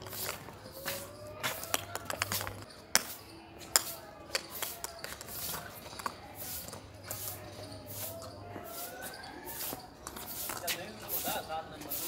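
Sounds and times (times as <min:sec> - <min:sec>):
puppy claws scraping on concrete: 0:00.0 - 0:12.0
ball tapping on concrete: 0:01.5 - 0:07.2.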